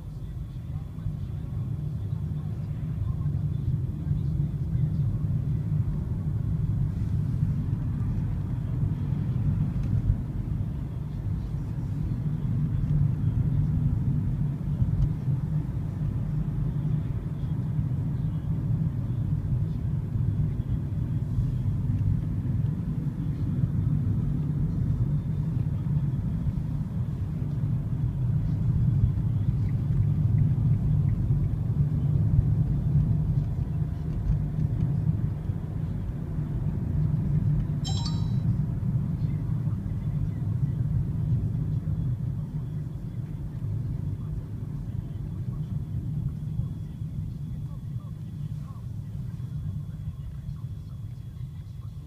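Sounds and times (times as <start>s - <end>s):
car engine and tyres rumbling: 0.0s - 37.8s.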